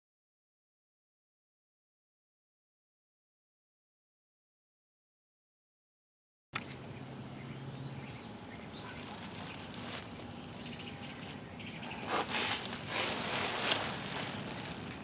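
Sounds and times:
low background noise: 0:06.6 - 0:15.0
rustling and knocks of handling: 0:08.9 - 0:15.0.

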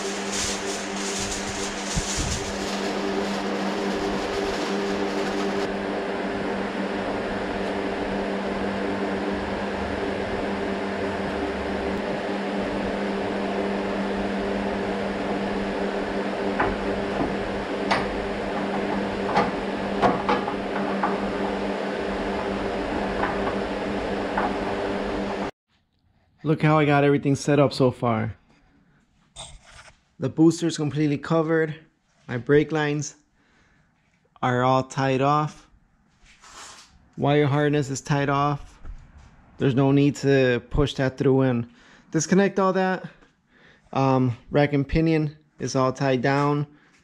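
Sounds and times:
fan motor hum: 0:00.0 - 0:25.5.

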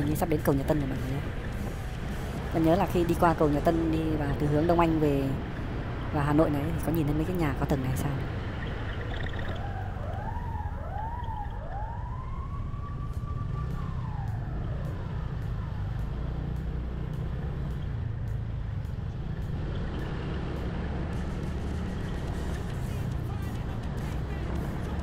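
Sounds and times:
scooter road and wind rumble: 0:00.0 - 0:25.0
siren wailing: 0:06.5 - 0:16.2.

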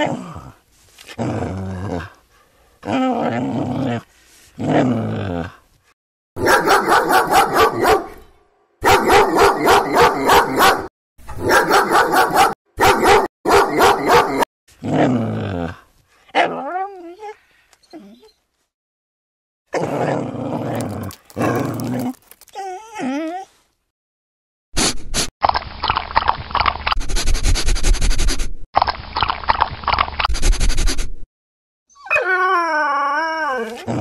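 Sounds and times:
dog barking: 0:06.4 - 0:08.2, 0:08.8 - 0:14.5.

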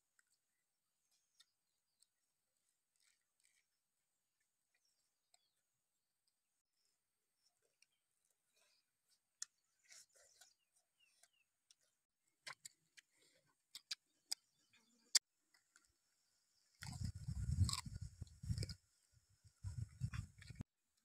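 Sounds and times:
people eating with lip smacks: 0:12.4 - 0:15.9, 0:16.8 - 0:18.8.

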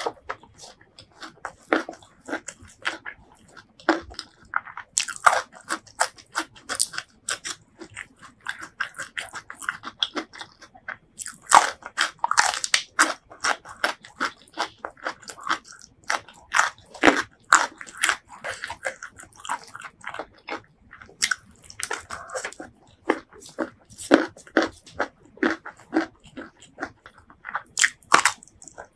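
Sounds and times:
chewing crunchy vegetables: 0:00.0 - 0:28.9.

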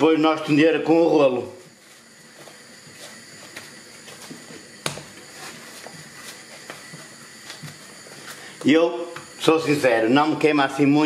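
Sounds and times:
hands patting dough: 0:01.7 - 0:08.4.

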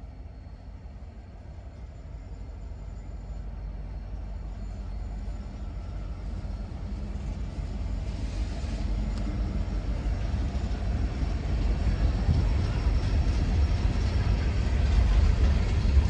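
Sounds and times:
locomotives rumbling past: 0:04.9 - 0:16.0.

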